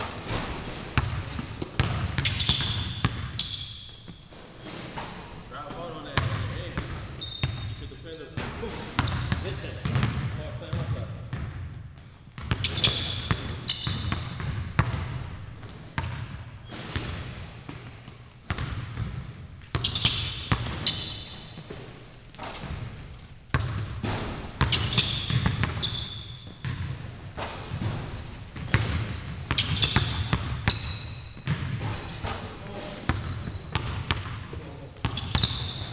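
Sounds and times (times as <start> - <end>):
sneakers squeaking: 0.0 - 35.9
basketball dribbling on wood floor: 1.0 - 3.4, 9.0 - 16.3, 17.0 - 21.8, 22.6 - 32.0, 33.0 - 35.9.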